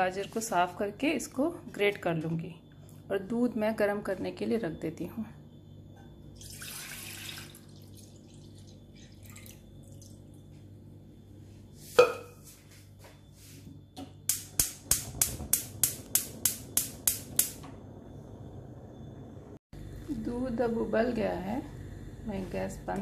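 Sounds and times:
milk pouring into saucepan: 6.4 - 10.2
gas igniter clicking: 14.3 - 17.7.

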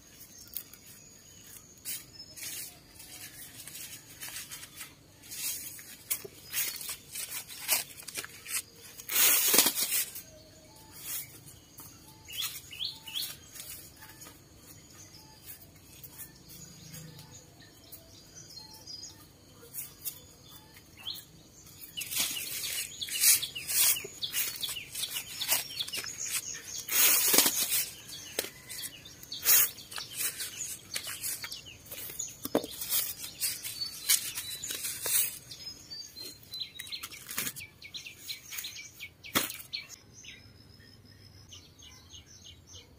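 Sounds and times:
birds chirping: 0.0 - 42.9
corn husks crackling and tearing: 0.3 - 11.3, 21.8 - 39.9.

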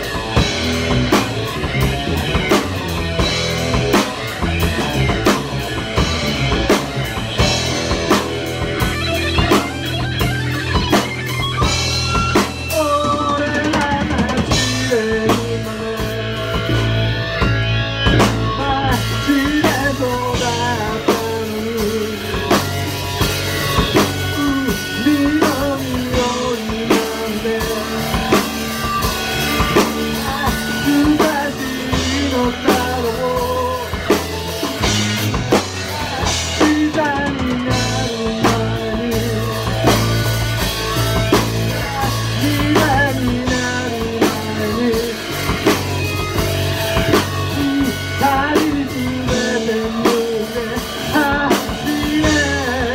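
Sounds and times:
bass guitar: 0.0 - 52.9
drum kit beat: 0.0 - 52.9
electric guitar: 0.0 - 52.9
person singing: 12.3 - 17.5, 18.1 - 22.7, 23.8 - 52.9.

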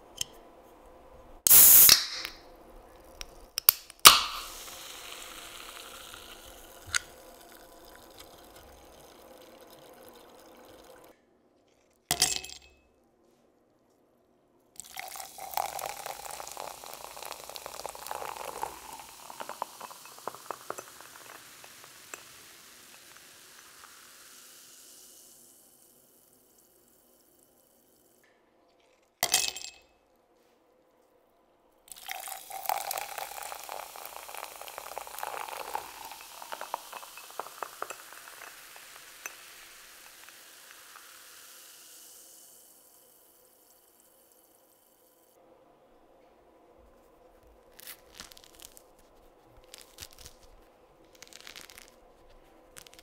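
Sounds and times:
can snapped open with hiss: 1.5 - 2.4, 3.2 - 7.4
soda fizzing: 1.5 - 2.4, 4.0 - 11.1, 14.8 - 28.2, 31.9 - 45.3, 47.8 - 49.0, 49.6 - 53.0
cola pouring into a glass: 1.5 - 11.2, 14.8 - 28.0, 31.9 - 45.1, 47.8 - 49.0, 49.6 - 53.0.

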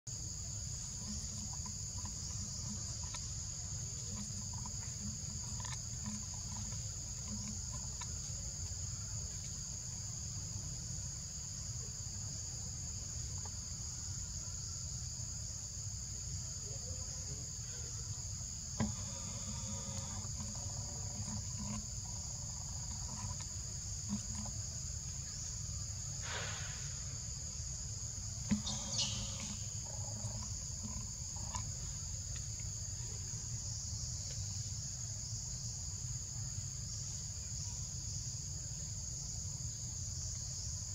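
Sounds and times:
insect chorus drone: 0.1 - 40.9
animal calls: 18.8 - 24.5, 28.5 - 31.9.

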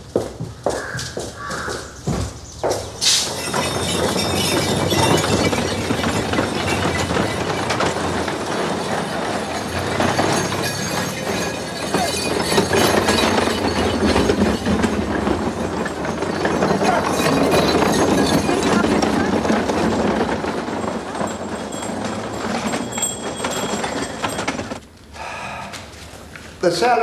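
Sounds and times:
cart and bicycles clattering: 0.0 - 27.0.

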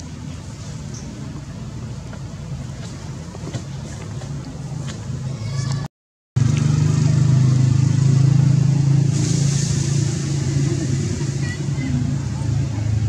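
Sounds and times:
high hiss: 9.0 - 11.6.

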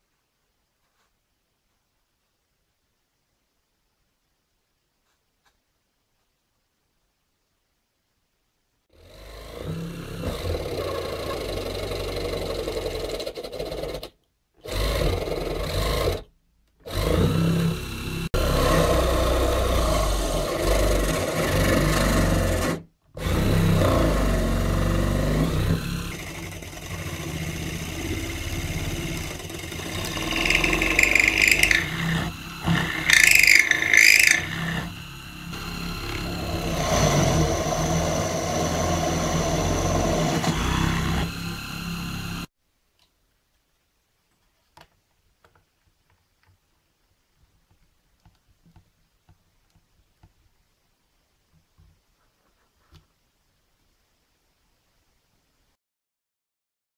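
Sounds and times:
drill bit cutting fibreboard: 9.0 - 42.5
drill press motor: 9.0 - 42.5
high-pitched cutting noise: 25.7 - 42.5.

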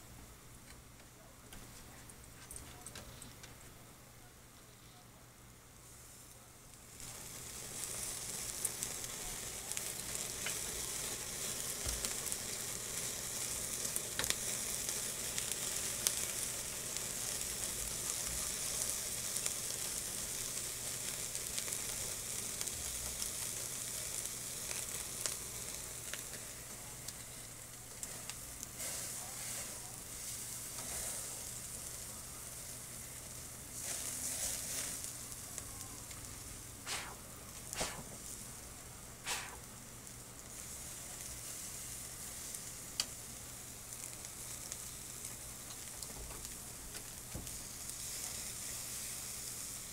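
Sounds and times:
food sizzling on a grill: 5.8 - 49.9
pops and crackles: 36.9 - 38.3, 39.2 - 39.7.

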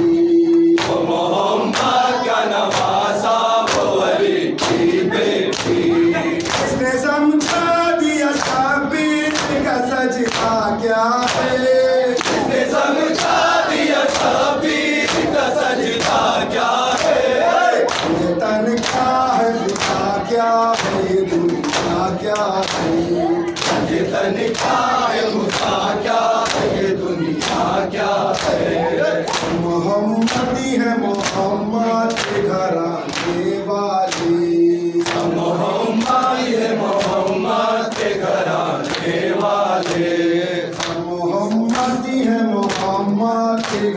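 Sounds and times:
men chanting in unison: 0.0 - 43.9
hand slaps on chests: 0.5 - 2.0, 2.7 - 6.8, 8.3 - 10.6, 11.2 - 17.2, 17.8 - 20.1, 20.7 - 24.8, 28.3 - 30.5, 32.1 - 32.5, 34.1 - 34.4, 35.0 - 35.3, 36.0 - 38.2, 38.8 - 40.1, 42.6 - 43.0, 43.6 - 43.9.

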